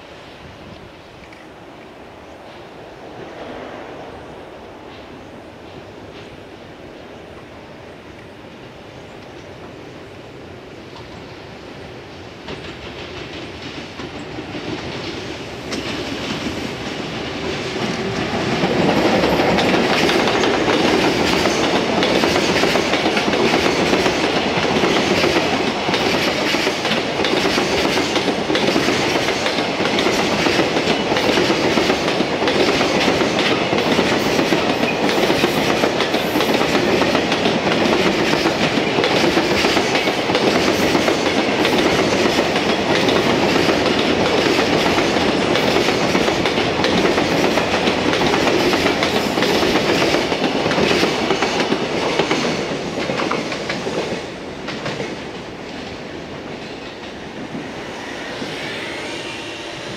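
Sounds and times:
train wheels on rails: 0.0s - 59.9s
clacks over rail joints: 12.4s - 55.9s.

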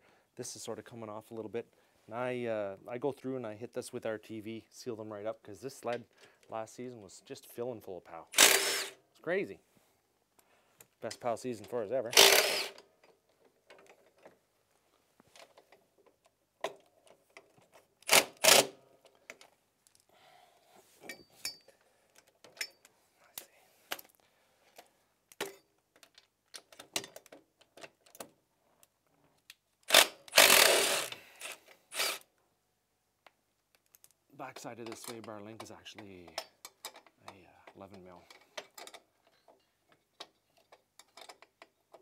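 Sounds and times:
cordless power tool bursts: 8.3s - 9.0s, 12.1s - 12.8s, 18.0s - 18.8s, 29.9s - 32.3s
metal tools clinking: 21.0s - 21.8s.

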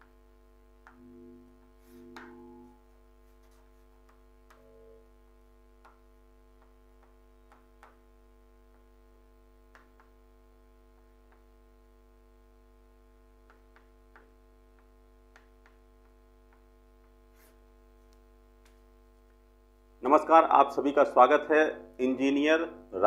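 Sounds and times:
steady low hum: 0.0s - 23.0s
chalk tapping on chalkboard: 1.8s - 2.6s, 3.3s - 4.6s, 13.5s - 17.6s.

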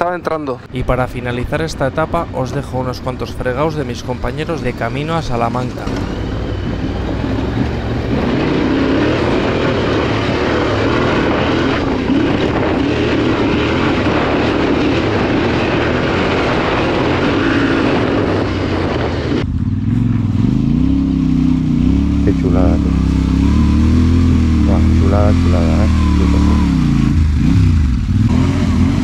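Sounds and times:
heavy wind rush: 0.0s - 29.0s
motorcycle engine running: 5.9s - 29.0s.

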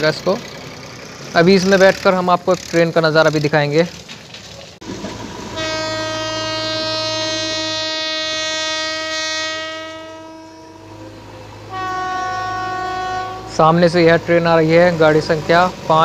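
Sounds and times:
locomotive horn blasts: 5.5s - 14.4s.

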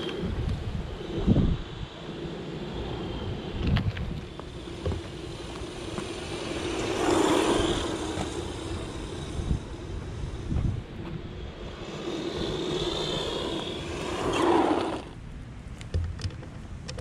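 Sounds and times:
tyres rumbling on asphalt: 0.0s - 17.0s
electric motor whining: 2.8s - 15.2s.

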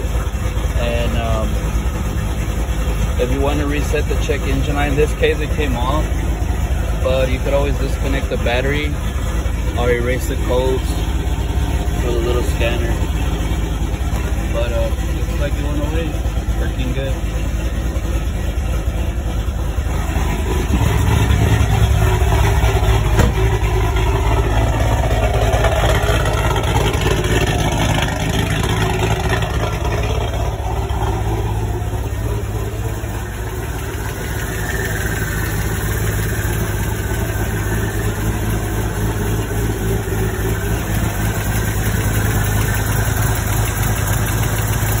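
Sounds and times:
car engine idling: 0.0s - 45.0s.

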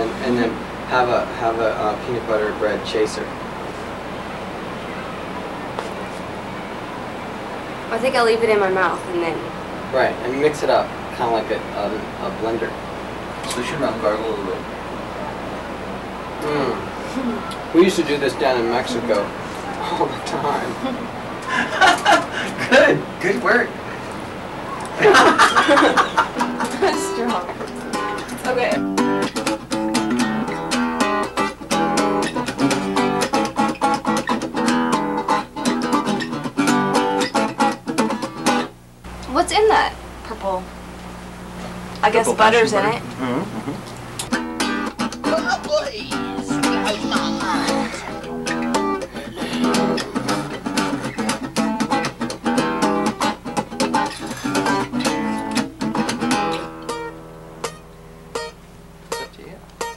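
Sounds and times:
classical guitar fingerstyle: 25.9s - 38.7s, 43.2s - 59.9s.

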